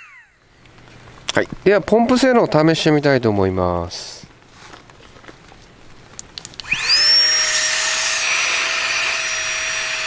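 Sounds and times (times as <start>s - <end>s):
electric air pump whining: 6.6s - 10.0s.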